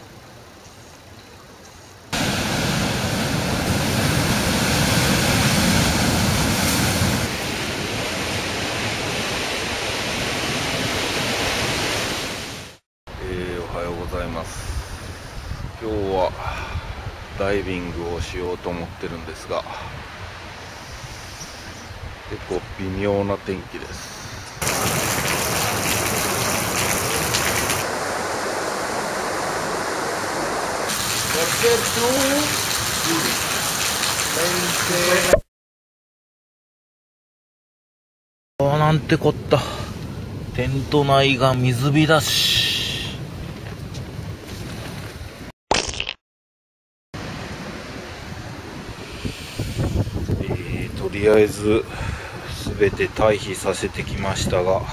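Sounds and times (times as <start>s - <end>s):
heavy rain on paving stones: 2.1s - 9.4s, 24.6s - 35.4s
surf breaking against rocks: 2.2s - 8.7s, 24.6s - 32.5s.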